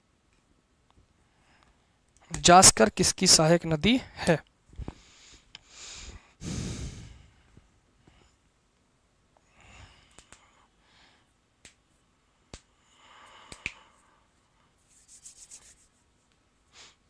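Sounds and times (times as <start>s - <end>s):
hands rubbing: 14.8s - 16.1s.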